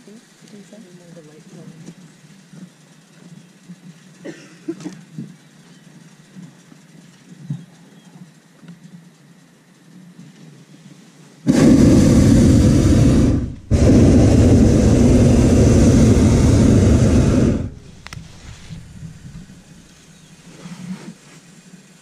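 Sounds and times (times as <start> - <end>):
propane burner blasts: 11.4 - 22.0.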